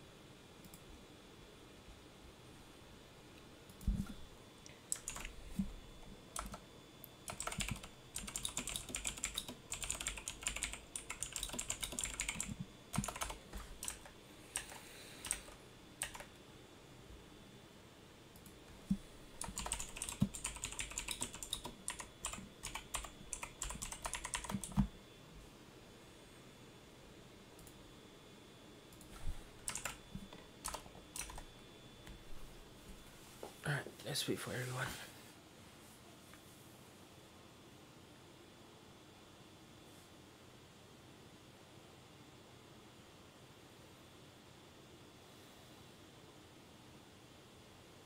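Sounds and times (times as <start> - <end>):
computer keyboard typing: 4.9 - 5.4, 6.3 - 6.6, 7.2 - 16.3, 18.4 - 24.9, 29.0 - 30.0, 30.6 - 31.5.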